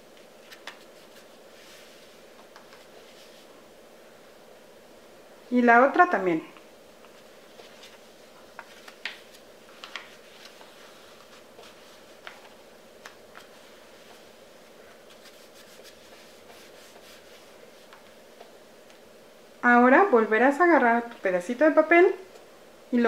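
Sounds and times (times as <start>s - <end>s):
low steady hum: 0.0s - 23.0s
paper crinkling: 7.4s - 13.7s.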